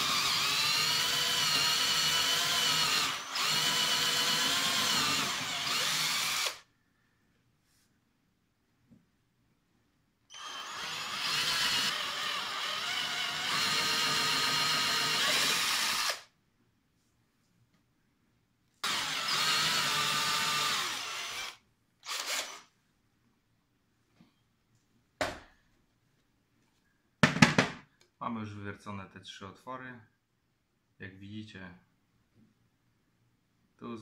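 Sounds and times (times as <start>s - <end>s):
cordless drill boring into board: 0.0s - 6.6s, 10.3s - 16.3s, 18.8s - 22.7s.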